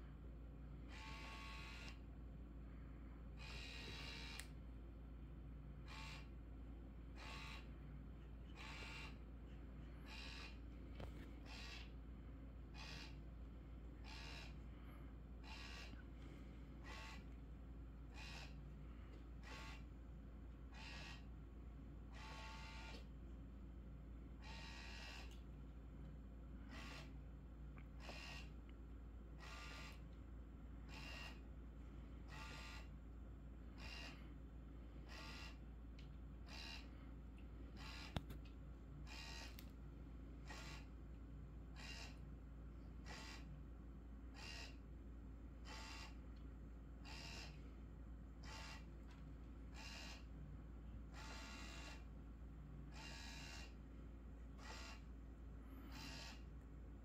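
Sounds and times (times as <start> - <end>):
faint small motor whirring: 0.0 - 57.0
small motor whirring: 0.8 - 2.1, 3.4 - 4.5, 5.8 - 6.3, 7.2 - 7.8, 8.5 - 9.2, 9.9 - 12.0, 12.7 - 13.2, 14.0 - 17.4, 18.1 - 18.6, 19.4 - 19.9, 20.7 - 21.3, 22.1 - 23.1, 26.7 - 27.2, 28.0 - 28.6, 29.4 - 30.0, 30.9 - 31.4, 32.3 - 32.9, 33.8 - 34.3, 35.0 - 35.6, 39.0 - 39.7, 40.4 - 40.9, 41.8 - 42.2, 43.0 - 43.5, 45.6 - 46.2, 47.0 - 47.6, 48.4 - 49.0, 49.7 - 50.3, 51.1 - 52.1, 52.9 - 53.8, 54.6 - 55.1, 55.8 - 56.5.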